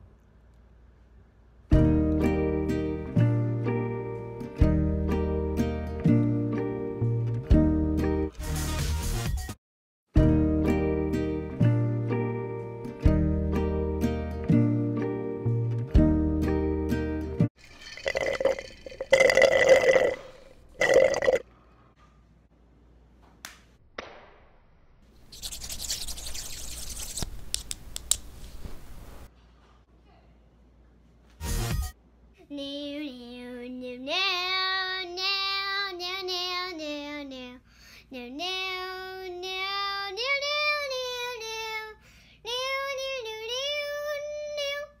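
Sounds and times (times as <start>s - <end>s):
person burping: 18.0s - 21.4s.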